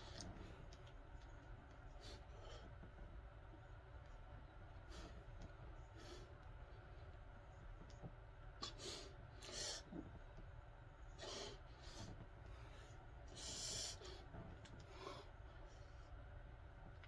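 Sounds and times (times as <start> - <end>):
faint room hum: 0.0 - 17.0
man breathing hard: 11.2 - 15.4.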